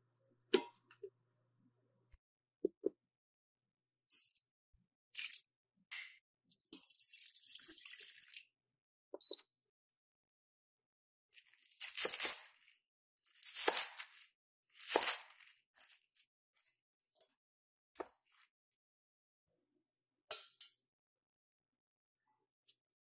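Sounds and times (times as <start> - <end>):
water pouring into metal pot: 6.5 - 8.5
knife crunching through cabbage: 11.4 - 16.2.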